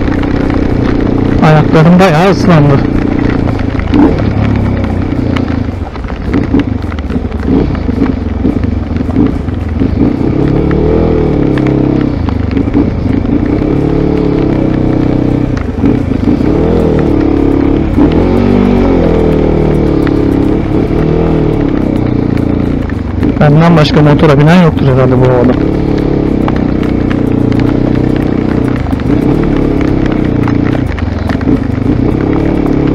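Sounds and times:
hiss of rain and wind: 0.0s - 32.9s
motorcycle engine revving: 0.0s - 32.9s.

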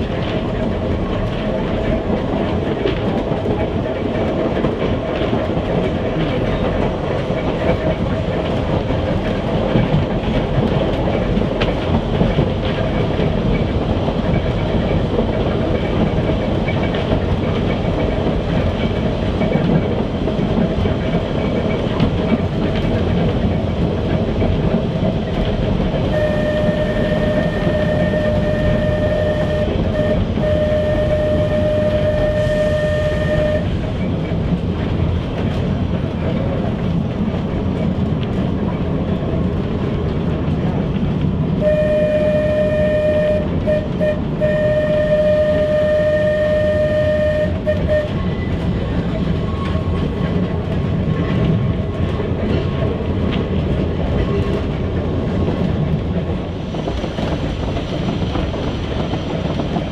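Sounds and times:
train body rattling: 0.0s - 59.9s
train running rumble: 0.0s - 59.9s
wheels clicking over rail joints: 0.0s - 59.9s
steady high tone: 26.1s - 33.7s, 41.6s - 48.2s.

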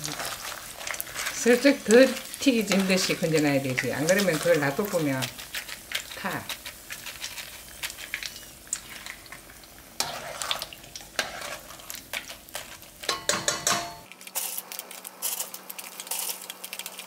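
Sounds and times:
peppers deep-frying in hot oil: 0.0s - 17.0s
metal strainer clinking on pan: 13.0s - 14.1s.

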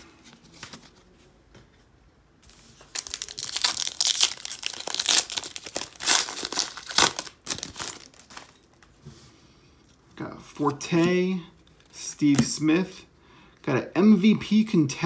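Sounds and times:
foil wrapper crinkling and tearing: 2.9s - 8.6s.

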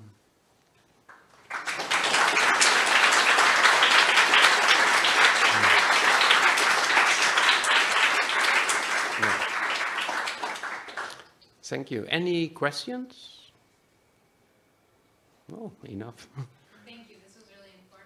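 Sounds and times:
audience applauding: 1.1s - 11.3s.

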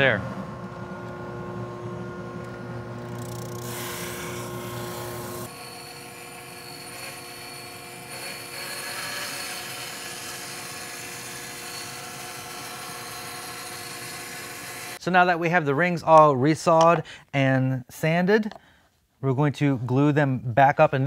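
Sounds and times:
drum sander running: 0.0s - 15.0s
bandsaw cutting wood: 3.0s - 15.0s.

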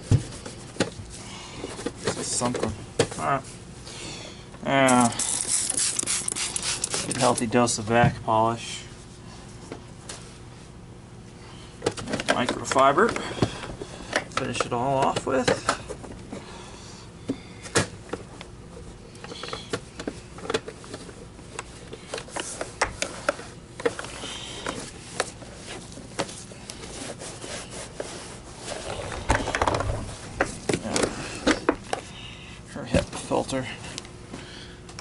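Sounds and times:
cloth wiping plastic: 4.9s - 7.4s, 24.8s - 30.7s.

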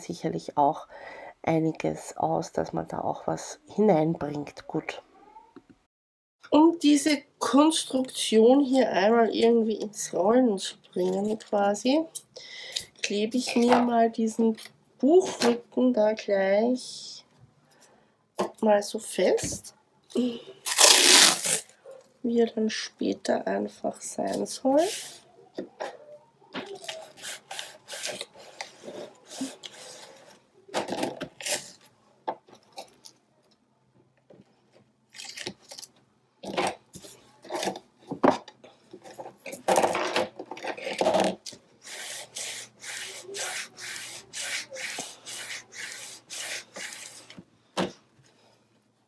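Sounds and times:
tape rubbing on cardboard: 41.8s - 47.4s.

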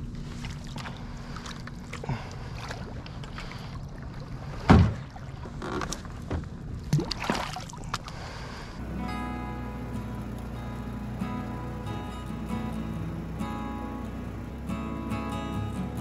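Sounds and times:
heavy thump: 4.7s - 5.0s
steady low rumble: 7.9s - 16.0s.

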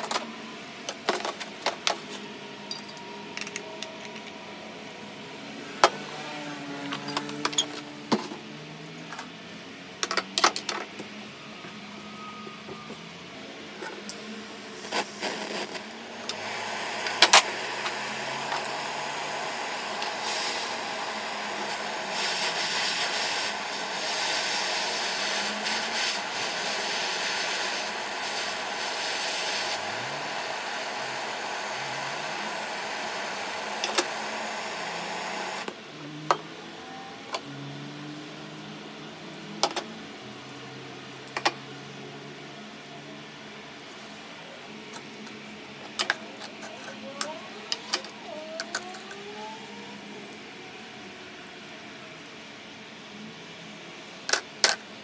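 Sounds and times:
butane torch hissing: 14.1s - 35.7s.

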